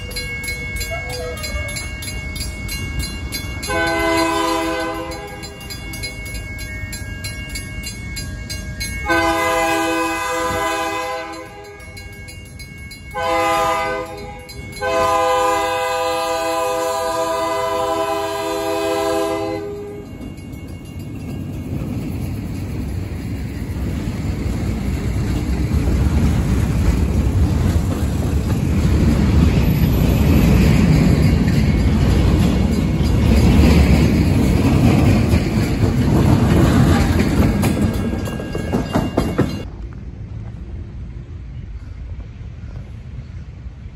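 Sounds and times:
freight train rumbling past: 0.0 - 43.9
locomotive air horn blasts: 3.7 - 5.4, 9.0 - 11.8, 13.2 - 20.0.

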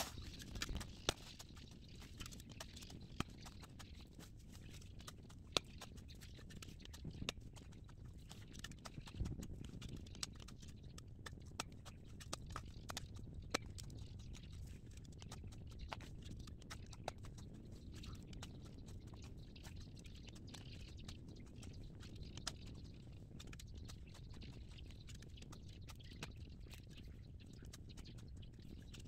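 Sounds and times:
shovel digging into stony soil: 0.0 - 0.8.

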